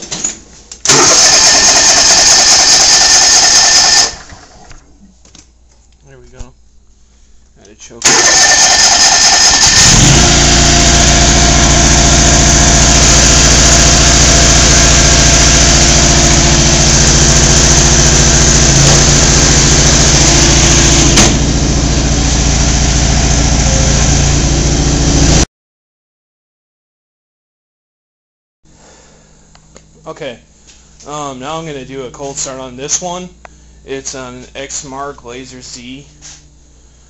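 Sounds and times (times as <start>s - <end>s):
riding mower engine running: 8.0s - 25.4s.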